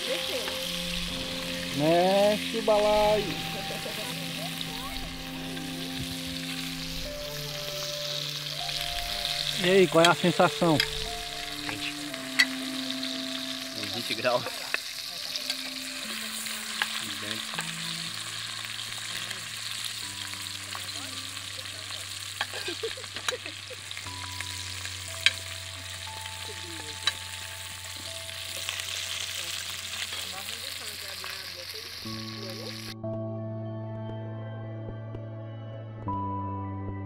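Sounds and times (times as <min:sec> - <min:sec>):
food sizzling in oil: 0:00.0 - 0:33.0
soft background music: 0:00.0 - 0:37.0.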